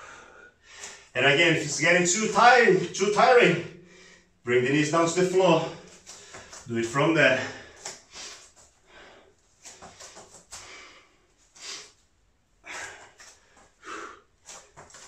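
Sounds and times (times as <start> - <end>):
man breathing hard: 0.0 - 1.2, 3.7 - 4.4, 5.7 - 6.7, 7.4 - 12.0, 12.6 - 15.0.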